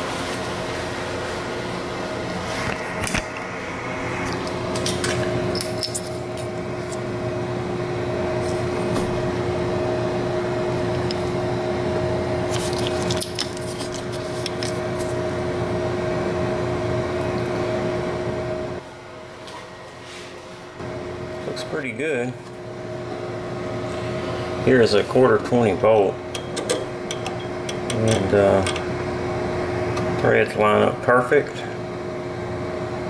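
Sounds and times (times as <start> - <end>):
lathe humming: 1.6 - 12.8.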